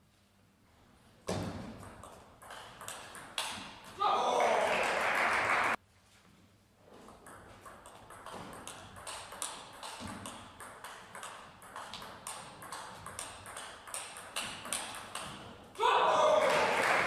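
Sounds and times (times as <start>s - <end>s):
table tennis ball clicking: 7.3s - 15.4s.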